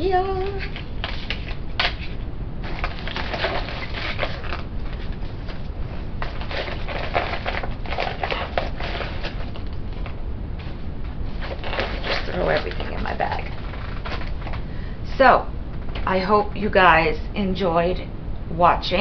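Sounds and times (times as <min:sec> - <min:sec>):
packaging rustling and crinkling: 0:00.3 - 0:14.7.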